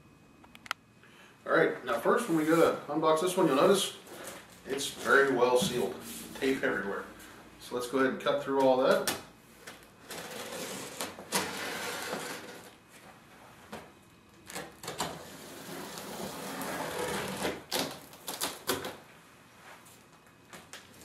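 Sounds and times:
sharp clicks and snaps: 0:00.4 - 0:00.8.

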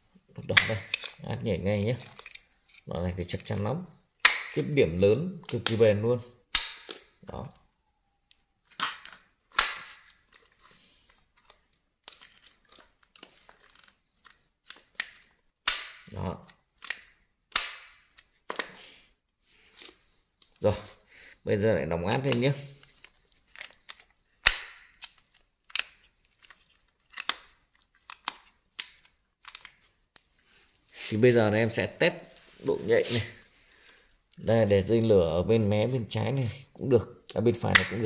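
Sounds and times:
small clicks and rustling: 0:10.1 - 0:15.4, 0:22.8 - 0:24.3, 0:24.9 - 0:30.9.

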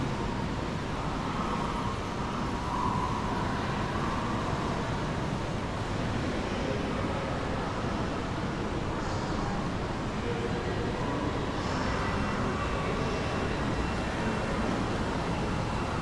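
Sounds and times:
faint held whine: 0:00.0 - 0:08.2.

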